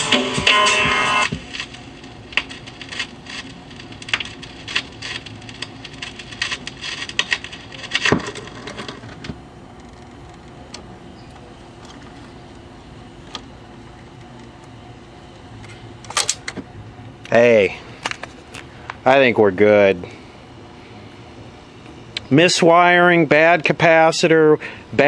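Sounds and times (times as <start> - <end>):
record changer clicks and clunks: 0.0 - 17.3
speaker hum: 0.0 - 25.0.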